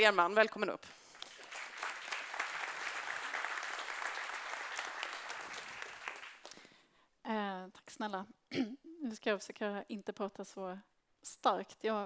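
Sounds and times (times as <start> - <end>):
audience applauding: 1.1 - 6.5.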